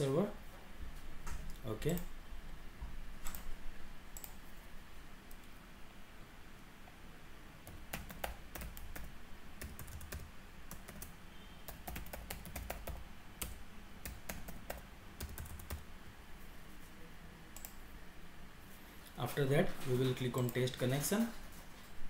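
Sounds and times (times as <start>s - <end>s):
typing on computer keyboard: 7.6s - 11.1s, 11.7s - 15.9s.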